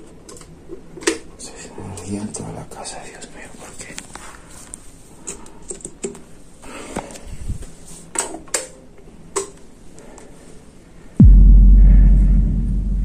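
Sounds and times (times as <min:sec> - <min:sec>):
deep boom with low rumble: 0:11.2 - 0:13.0.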